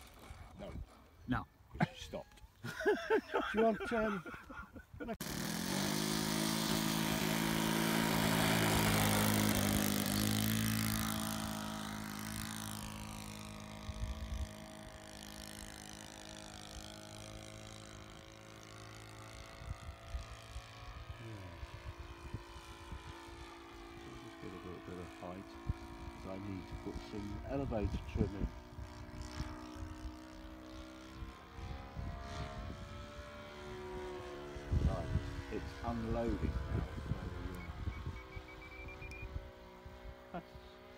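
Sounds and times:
model plane engine droning: 0.0 - 1.3, 5.2 - 40.9.

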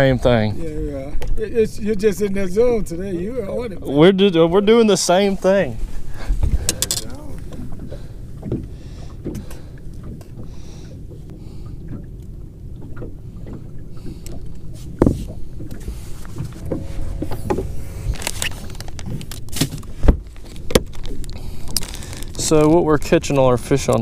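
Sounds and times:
low rumble of wind and water: 0.0 - 24.0
plastic bag rustling: 18.1 - 22.6.

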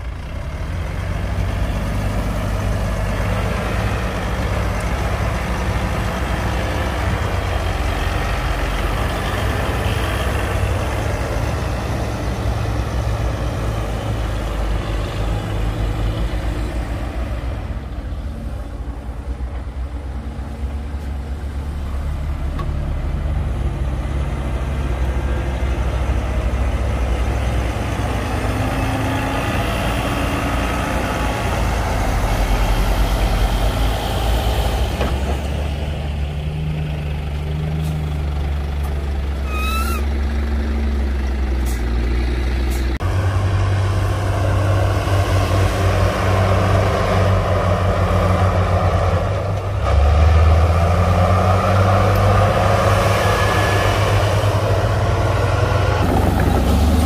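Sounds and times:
heavy diesel machinery: 0.0 - 57.0
high squeak: 39.4 - 40.1.

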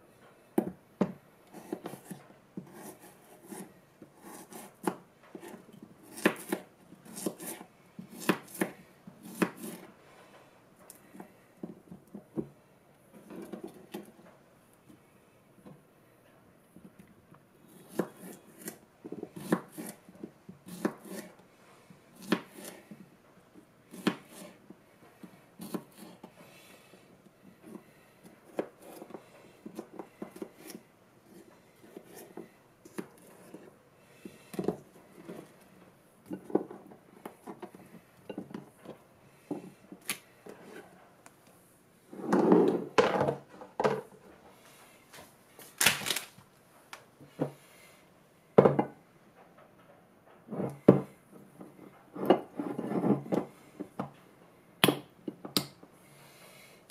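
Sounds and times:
knife cutting on plastic board: 1.5 - 9.9, 17.7 - 20.0, 20.6 - 21.4, 22.2 - 22.9, 23.9 - 24.6, 25.6 - 26.4, 27.6 - 33.7.

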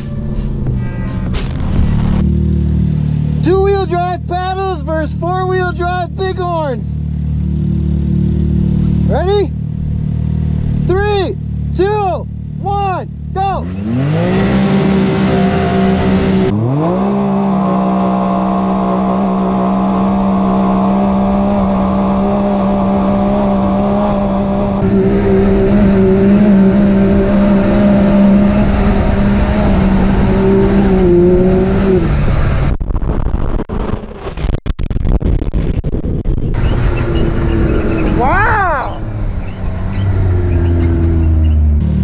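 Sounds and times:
engine at full throttle: 0.0 - 33.0.

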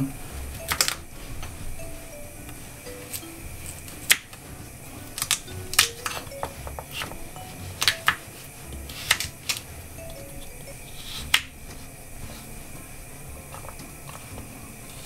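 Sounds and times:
knife slicing carrot: 8.8 - 9.7.

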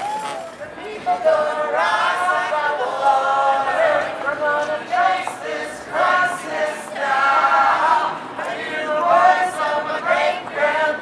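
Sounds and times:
group of people singing: 0.7 - 11.0.

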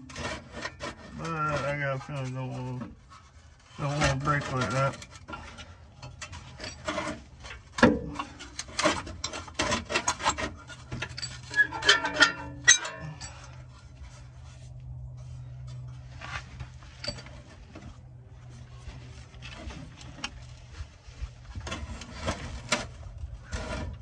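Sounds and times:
metal exhaust pipe clanking: 3.1 - 14.5.

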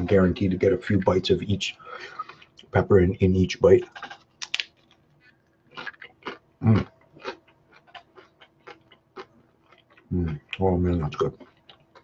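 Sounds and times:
person chewing crunchy food: 2.0 - 2.7, 3.8 - 12.0.

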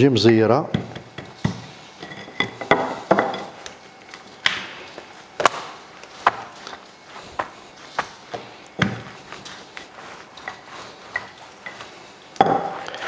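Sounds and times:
rolling pin knocking: 0.7 - 1.7.

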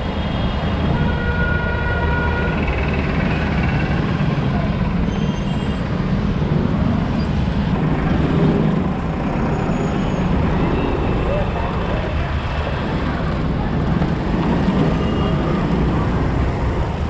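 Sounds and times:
road noise: 0.0 - 17.0
surrounding traffic: 0.0 - 17.0
vehicle horn: 0.9 - 2.6.

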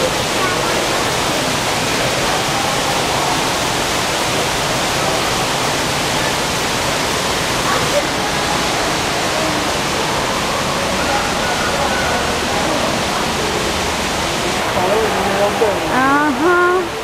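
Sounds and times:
faint voices: 0.0 - 17.0
waterfall rushing: 0.0 - 17.0.

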